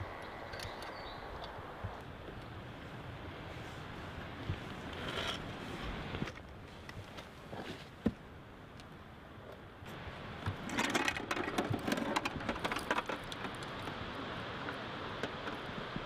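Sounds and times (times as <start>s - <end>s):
metallic clicks and rattling: 10.7s - 13.8s.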